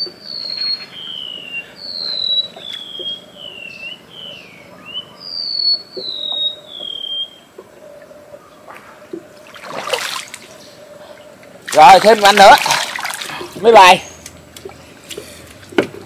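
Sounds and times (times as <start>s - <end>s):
bird whistling falling notes: 0.3s - 4.0s
water splash: 9.4s - 10.5s, 11.6s - 13.6s.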